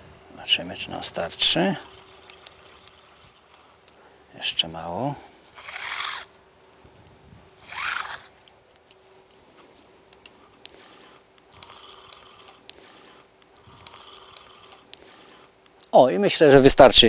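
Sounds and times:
fishing reel gears ticking: 1.2s - 4.0s, 5.5s - 6.3s, 7.6s - 8.3s, 10.6s - 15.5s.

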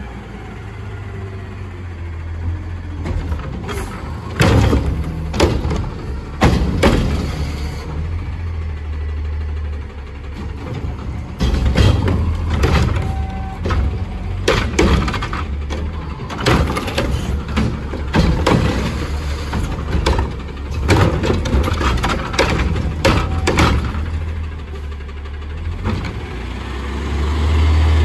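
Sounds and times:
diesel engine running: 0.0s - 28.0s
metallic clanks and bangs: 2.9s - 7.9s, 10.2s - 24.7s.

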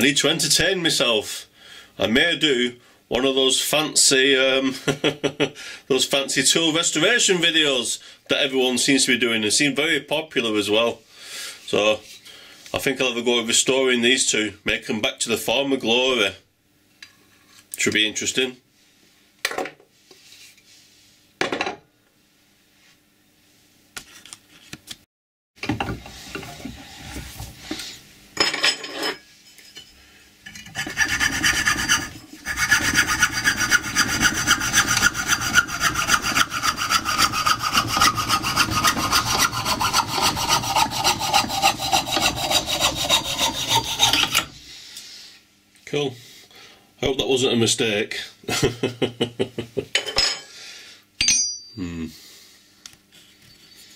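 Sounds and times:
hacksaw cutting wood: 30.7s - 44.5s.

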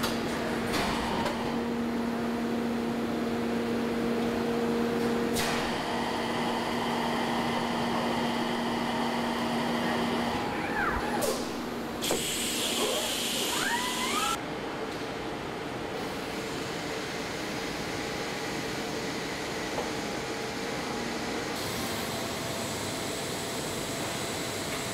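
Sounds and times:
machine hum: 0.0s - 14.4s
burst of hiss: 12.0s - 14.2s
short rising machine whines: 12.4s - 14.4s.

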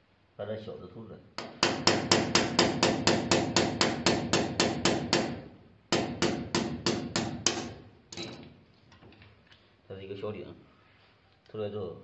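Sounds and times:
hammer striking metal punch: 1.4s - 8.5s.

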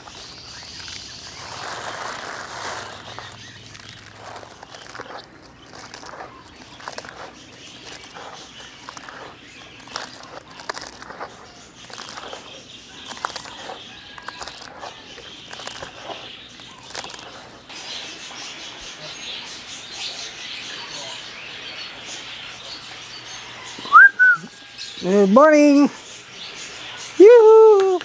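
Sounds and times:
hands rustling wet greens in basin: 0.0s - 22.1s
birds chirping: 0.0s - 28.0s.

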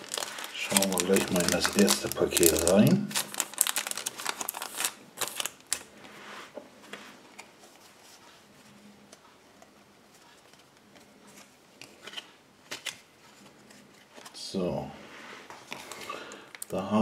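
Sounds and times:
foil wrapper crinkling: 0.0s - 5.9s.

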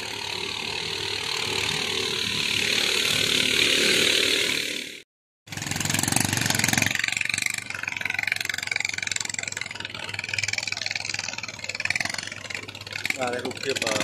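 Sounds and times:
boat engine puttering: 5.8s - 14.0s.

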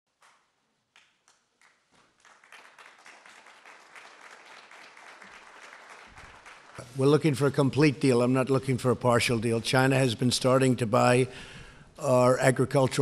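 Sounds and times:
audience applause: 1.6s - 7.0s.

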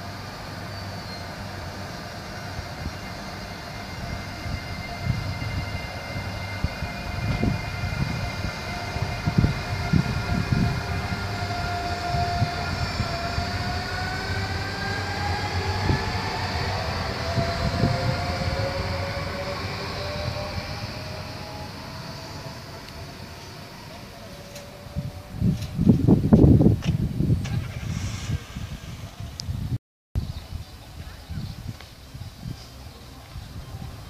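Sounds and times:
electric train traction whine: 0.0s - 29.6s.

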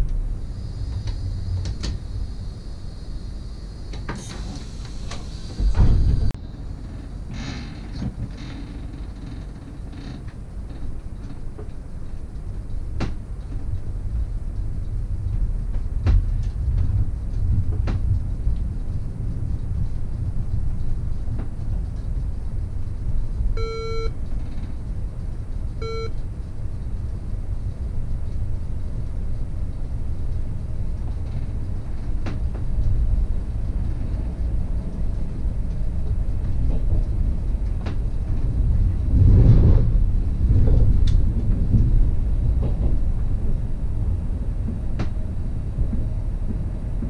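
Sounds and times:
train running low rumble: 0.0s - 47.0s
short electronic beeps: 23.6s - 24.1s, 25.8s - 26.2s.

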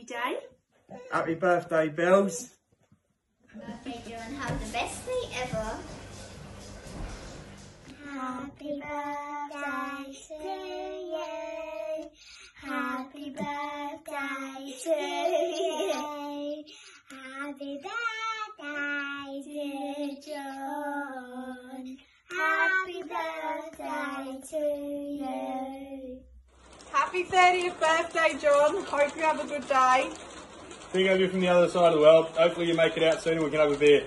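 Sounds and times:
girls singing together: 7.9s - 16.6s, 17.2s - 26.2s.

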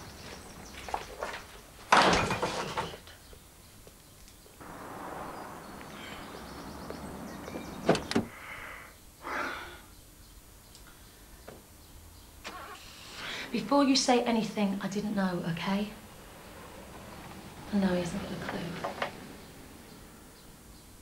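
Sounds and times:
door banging: 1.9s - 2.9s.

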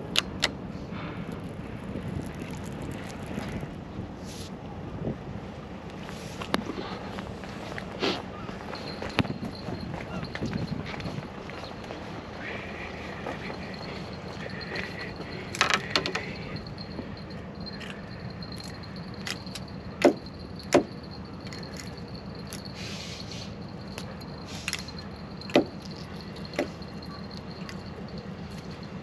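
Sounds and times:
fishing tackle clicks and knocks: 14.7s - 16.5s.

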